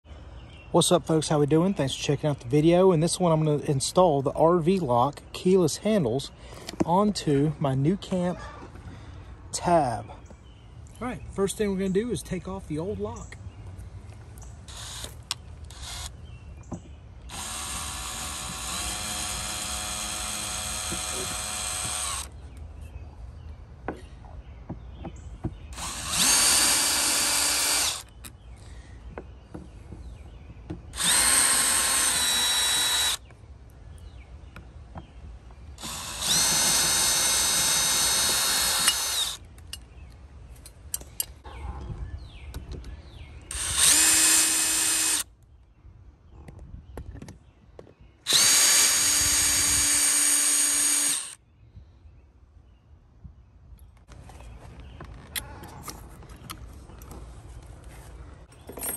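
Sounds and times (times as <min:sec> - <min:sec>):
cordless drill whining: 0:14.7 - 0:16.1, 0:17.3 - 0:22.3, 0:25.7 - 0:28.1, 0:30.9 - 0:33.2, 0:35.8 - 0:39.4, 0:43.5 - 0:45.2, 0:48.3 - 0:51.4.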